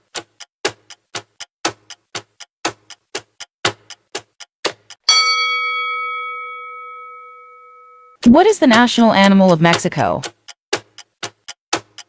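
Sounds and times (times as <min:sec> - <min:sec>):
clock ticking: 0:00.0 - 0:07.2, 0:08.2 - 0:12.0
ringing chime: 0:05.1 - 0:08.2.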